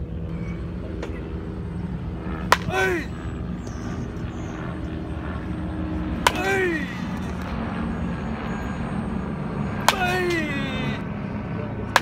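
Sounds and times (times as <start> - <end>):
low background hum: 0.0 - 12.0
bat cracking ball: 2.4 - 2.8, 6.2 - 7.5, 9.8 - 10.5.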